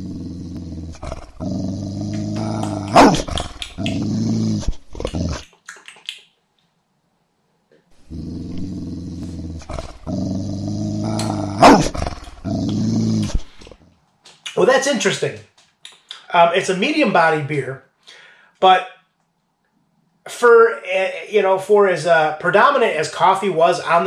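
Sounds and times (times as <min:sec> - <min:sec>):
dog growling and barking: 0:00.0 - 0:05.5, 0:08.0 - 0:13.8.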